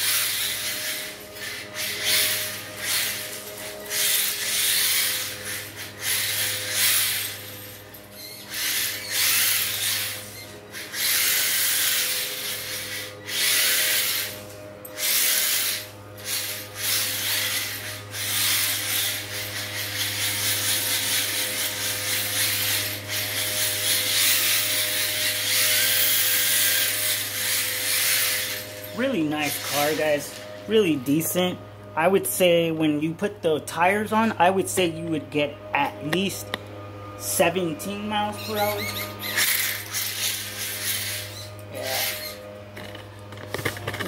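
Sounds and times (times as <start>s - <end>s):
toy car motor whirring: 0.0s - 31.5s, 37.2s - 44.0s.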